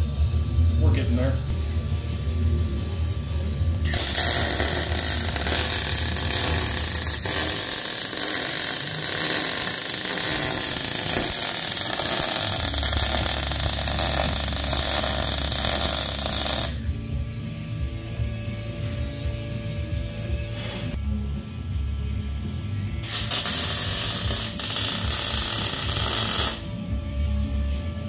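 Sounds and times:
welding arc crackling hiss: 0:03.9 - 0:16.8, 0:23.0 - 0:26.6.

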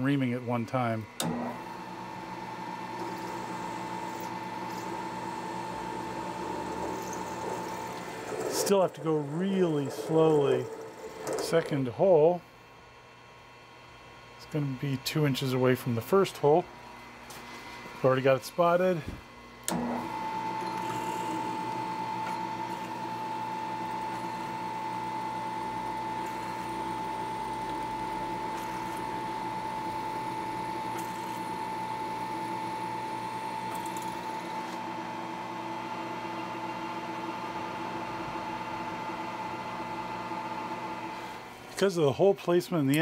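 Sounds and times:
milling machine spindle whine: 0:00.0 - 0:12.5, 0:14.4 - 0:43.0
drill bit cutting metal: 0:02.9 - 0:11.8, 0:19.7 - 0:34.9.

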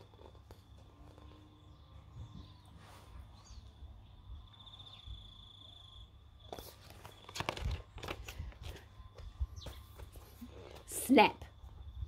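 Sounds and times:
book pages rustling and turning: 0:06.4 - 0:10.9.

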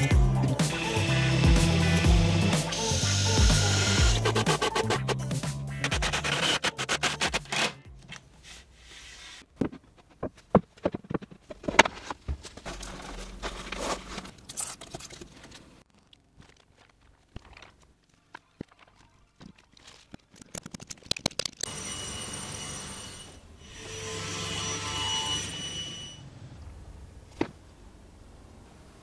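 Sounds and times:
background music: 0:00.0 - 0:08.4
scraping on wood: 0:08.4 - 0:14.4.

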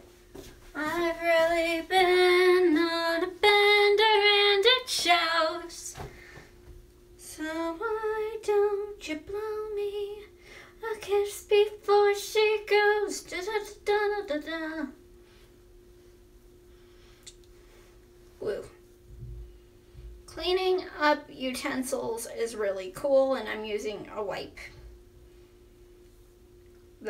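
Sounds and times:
woman singing unaccompanied: 0:00.8 - 0:06.0, 0:07.2 - 0:15.0
faint steady tone: 0:01.6 - 0:27.0.

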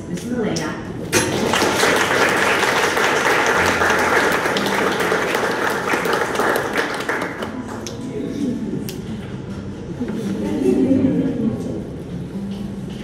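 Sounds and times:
audience applauding: 0:01.2 - 0:08.0.

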